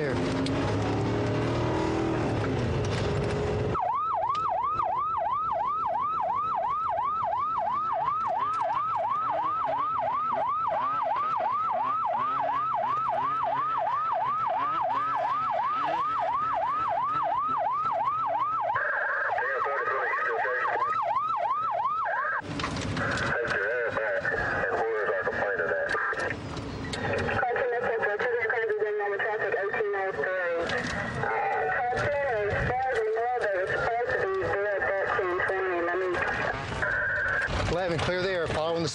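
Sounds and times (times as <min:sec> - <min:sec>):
police siren yelping: 0:03.6 - 0:22.4, 0:27.2 - 0:37.6
radio voice: 0:18.7 - 0:21.0, 0:23.0 - 0:26.3, 0:27.0 - 0:38.9.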